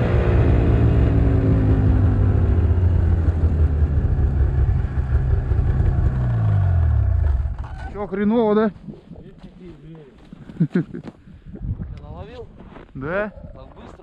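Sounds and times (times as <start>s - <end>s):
snowmobile engine running: 0.0s - 7.6s.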